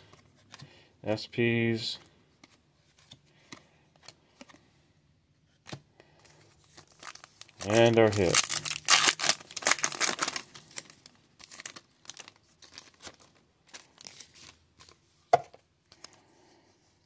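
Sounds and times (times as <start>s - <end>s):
wrapper and cards rustling: 5.6s - 15.2s
foil wrapper tearing: 6.9s - 13.0s.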